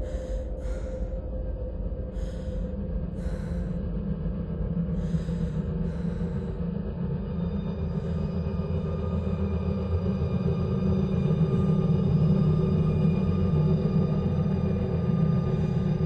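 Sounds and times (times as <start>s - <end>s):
person gasping heavily: 0.0s - 1.3s, 2.1s - 4.0s, 5.0s - 6.6s
low steady drone: 0.0s - 16.0s.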